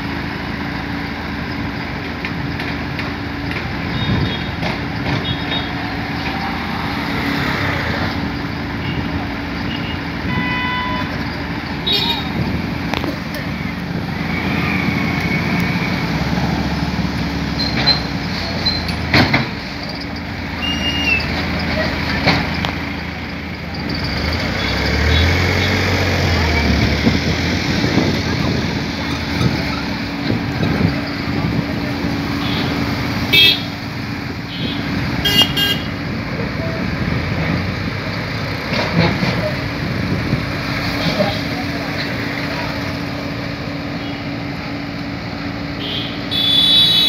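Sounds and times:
excavator diesel engine droning: 0.0s - 47.0s
track clatter: 0.6s - 9.7s, 11.0s - 34.4s, 36.1s - 43.9s
vehicle horn toots: 9.7s - 11.2s, 32.4s - 33.7s, 34.5s - 35.9s, 45.8s - 47.0s.

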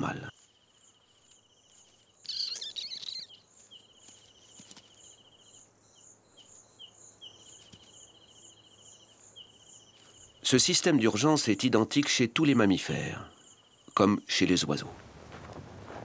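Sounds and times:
high-pitched insect chirping: 0.3s - 10.5s, 13.3s - 14.0s.

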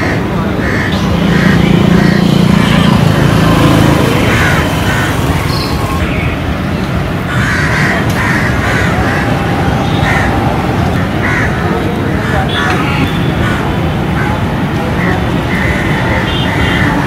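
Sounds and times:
crows cawing: 0.0s - 6.0s, 7.3s - 14.4s.

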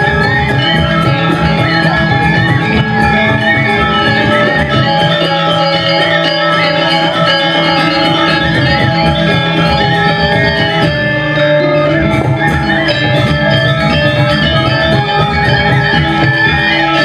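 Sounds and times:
gamelan metallophones and gongs: 0.0s - 17.0s.

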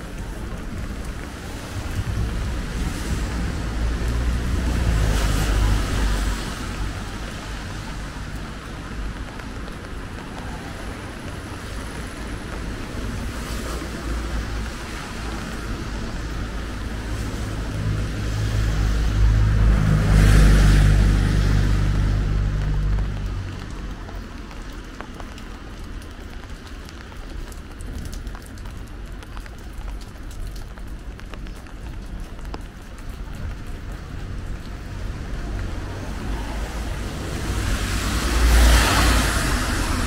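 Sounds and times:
tyres hissing on wet road: 0.0s - 40.0s.

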